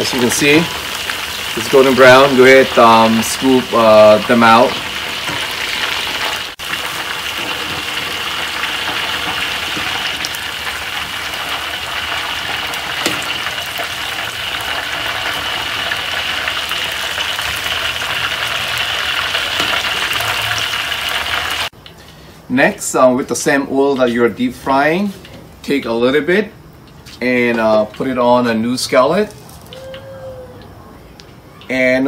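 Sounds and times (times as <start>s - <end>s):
wings deep-frying in oil: 0.0s - 22.0s.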